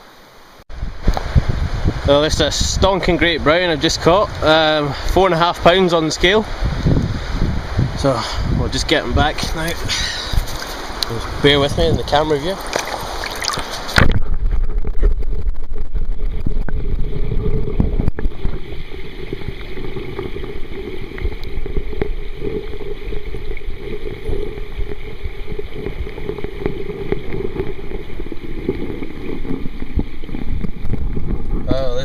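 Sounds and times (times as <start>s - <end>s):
underwater river rumble: 0.0s - 32.0s.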